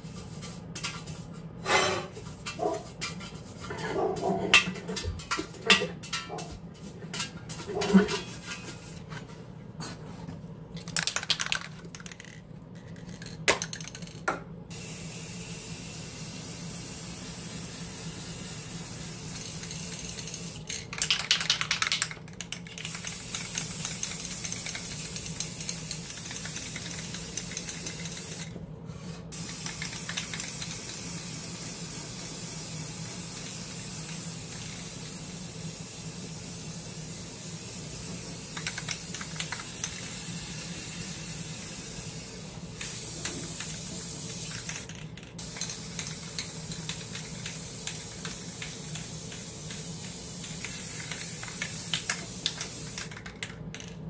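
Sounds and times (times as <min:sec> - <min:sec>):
steady hiss: 0:14.7 - 0:20.8, 0:29.3 - 0:53.9.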